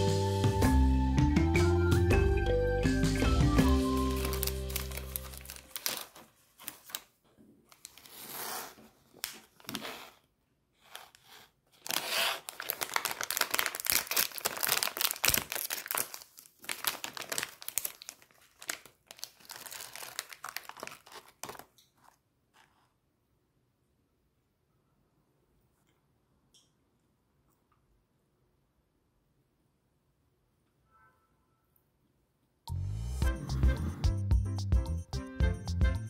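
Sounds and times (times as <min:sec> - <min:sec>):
plastic bag tearing: 0:03.9 - 0:07.1, 0:07.7 - 0:10.2, 0:10.8 - 0:21.8
plastic wrappers crinkling: 0:03.9 - 0:08.4, 0:09.0 - 0:10.0, 0:10.8 - 0:22.2.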